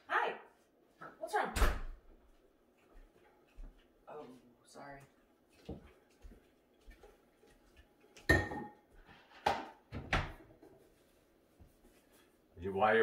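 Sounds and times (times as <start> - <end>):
dishes and utensils knocking: 8.3 - 8.8.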